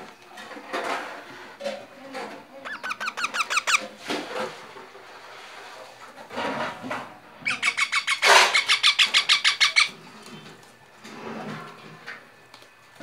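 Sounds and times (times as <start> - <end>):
parakeet shrill calls: 2.6 - 3.9, 7.4 - 10.0.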